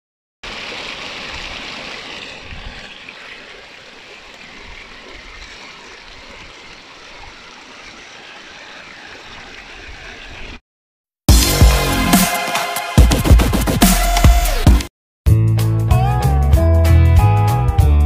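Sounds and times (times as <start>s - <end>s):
waterfall rushing over rocks: 0.4s - 10.1s.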